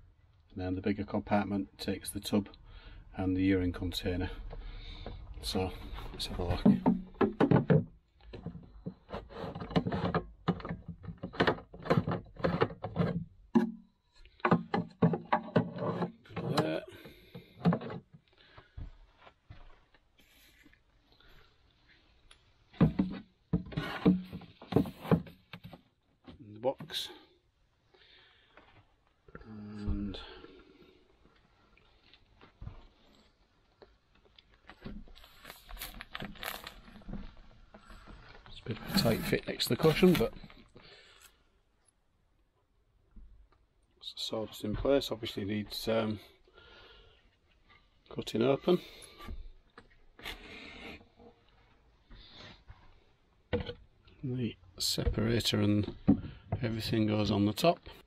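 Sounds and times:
plastic wrapping crinkling: 34.2s - 37.7s.

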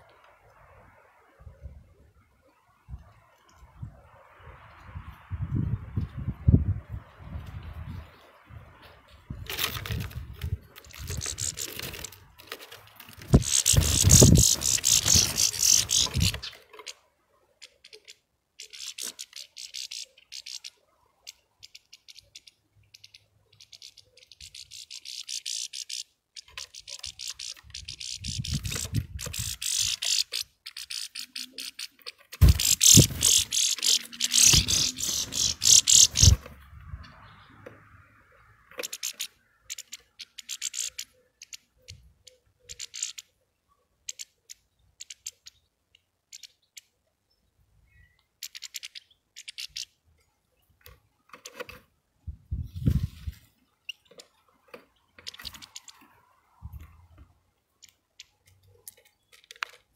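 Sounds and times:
birds wing flutter: 7.3s - 37.2s, 52.6s - 57.1s
seeds clicking: 29.2s - 36.5s, 55.2s - 56.0s.

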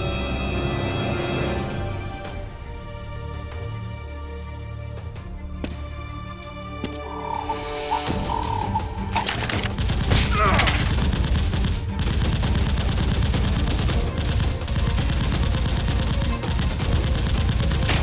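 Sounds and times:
automatic gunfire: 9.6s - 18.0s.

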